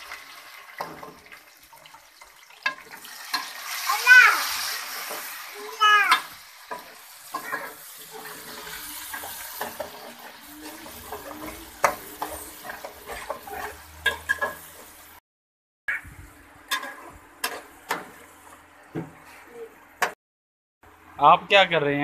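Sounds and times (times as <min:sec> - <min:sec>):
faint sizzle: 0:00.0 - 0:15.2, 0:15.9 - 0:20.2
metal spatula scraping a pan: 0:06.1 - 0:15.0, 0:16.7 - 0:18.6.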